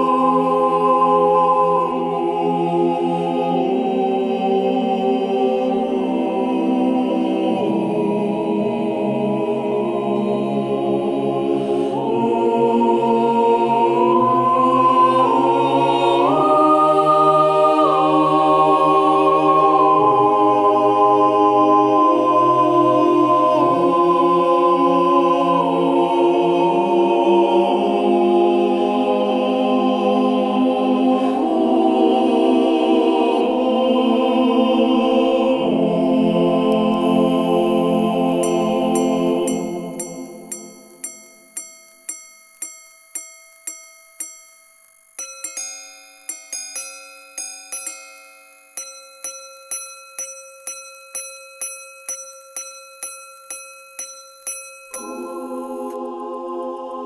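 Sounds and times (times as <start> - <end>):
choir holding long chords: 0.0 - 41.4, 54.9 - 57.0.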